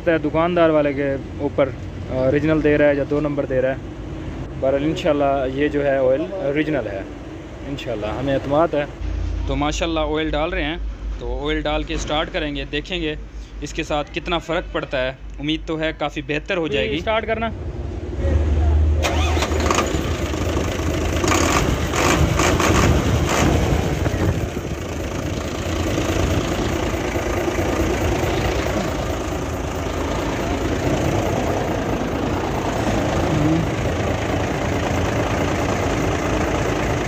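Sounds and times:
diesel truck engine idling: 0:00.0 - 0:37.0
engine knocks: 0:19.0 - 0:37.0.

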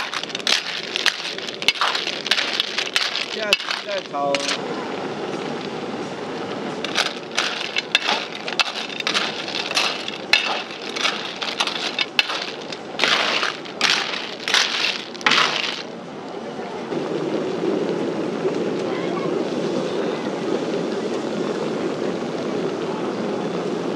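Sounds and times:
liquid sizzling in hot wok: 0:00.0 - 0:04.6
shells clattering in a wok: 0:00.0 - 0:04.6, 0:06.8 - 0:15.9.

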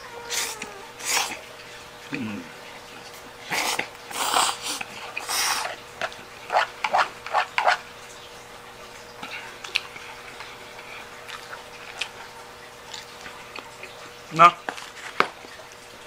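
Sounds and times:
mouth sucking sounds: 0:00.3 - 0:01.4, 0:03.4 - 0:05.8
person slurping noodles: 0:03.5 - 0:05.8
chewing: 0:09.2 - 0:15.8.

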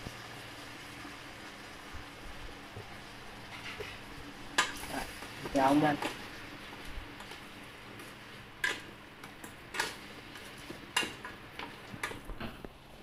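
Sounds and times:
spatula stirring in a pan: 0:02.9 - 0:12.4.

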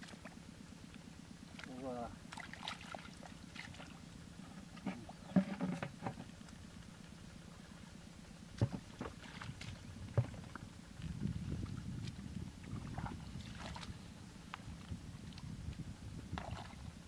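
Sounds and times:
low background rumble: 0:00.0 - 0:17.0
hands squelching in wet mud: 0:01.5 - 0:04.0, 0:09.1 - 0:10.0, 0:11.6 - 0:14.0.

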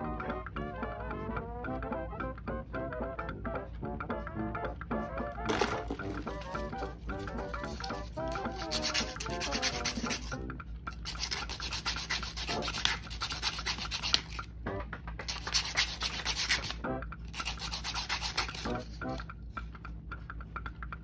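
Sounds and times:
sandpaper rubbing on plastic: 0:06.1 - 0:10.3, 0:11.1 - 0:14.4, 0:15.3 - 0:16.8, 0:17.4 - 0:19.0.

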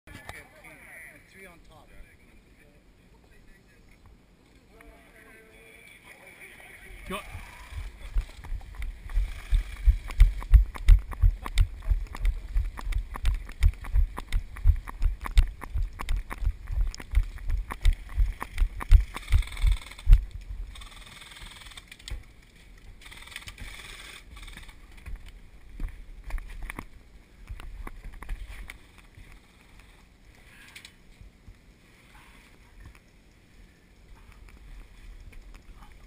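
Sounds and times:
sharp clicks and rattles: 0:07.7 - 0:25.4
running footsteps thudding: 0:07.8 - 0:20.3.

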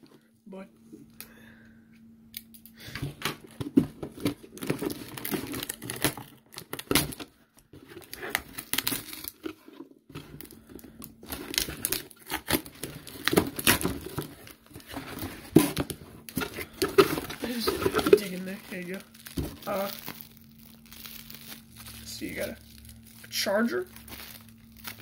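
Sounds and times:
cardboard crinkling: 0:03.4 - 0:25.0
packing tape ripping: 0:04.2 - 0:07.3, 0:08.0 - 0:09.6, 0:11.2 - 0:25.0.

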